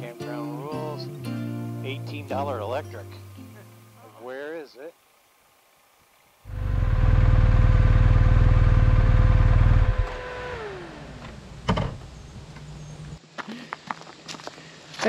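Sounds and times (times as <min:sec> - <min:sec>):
whine winding down: 0:06.4 - 0:11.7
motorcycle engine rumbling: 0:06.5 - 0:13.2.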